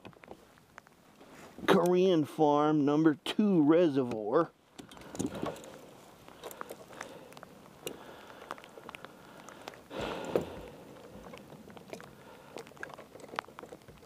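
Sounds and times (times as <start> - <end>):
rustling scrape: 0.4 - 1.7.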